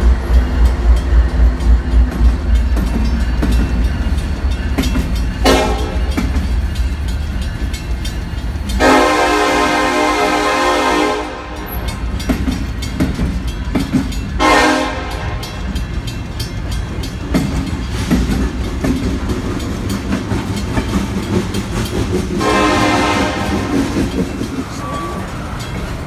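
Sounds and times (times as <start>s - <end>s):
low train rumble: 0.0s - 26.0s
train wheels clattering on rails: 0.0s - 26.0s
locomotive horn blasts: 5.4s - 6.1s, 8.8s - 11.7s, 14.4s - 15.6s, 22.4s - 23.9s.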